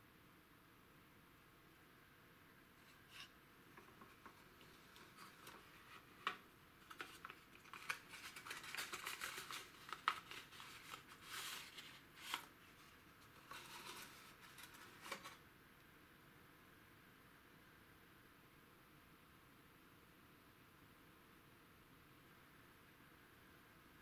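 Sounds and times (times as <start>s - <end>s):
cardboard rustling and scraping: 2.8s - 15.4s.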